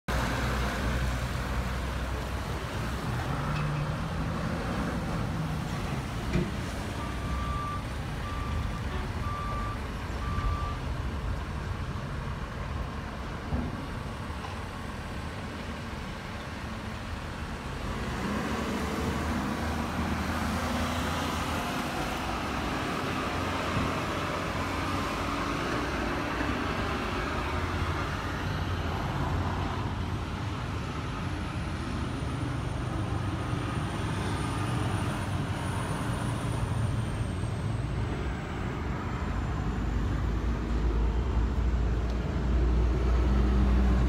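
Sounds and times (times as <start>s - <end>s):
reversing alarm beeping: 7.0s - 10.9s.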